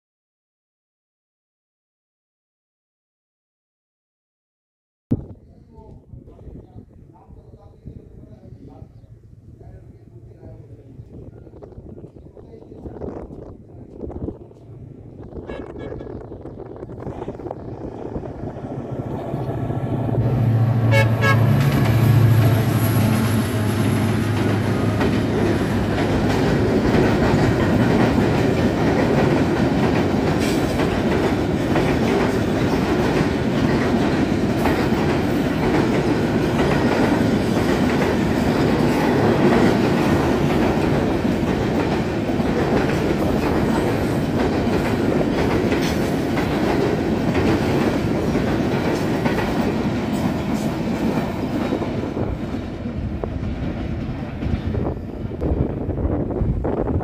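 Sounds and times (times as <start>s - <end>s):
train wheels rumbling on rail: 9.6s - 57.0s
rail joint clatter: 21.4s - 55.6s.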